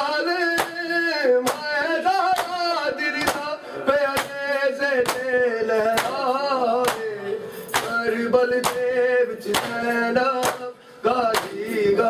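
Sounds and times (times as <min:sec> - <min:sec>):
man chanting a lament: 0:00.0 - 0:12.0
palms slapping bare chests: 0:00.5 - 0:03.5, 0:04.1 - 0:07.1, 0:09.5 - 0:10.7, 0:11.3 - 0:11.6.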